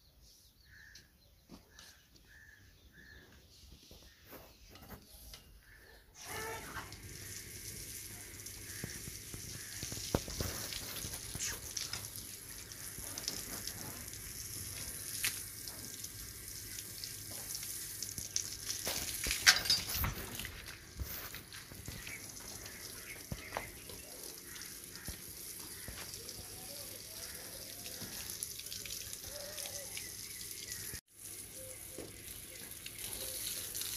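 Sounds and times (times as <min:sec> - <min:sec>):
hose water spraying on hide: 0:06.2 - 0:33.9.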